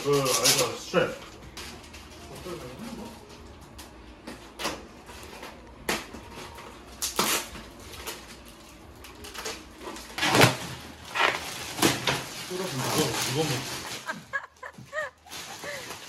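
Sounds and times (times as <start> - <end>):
plastic wrapping crinkling: 0.0 - 16.0
scissors cutting plastic: 7.0 - 14.1.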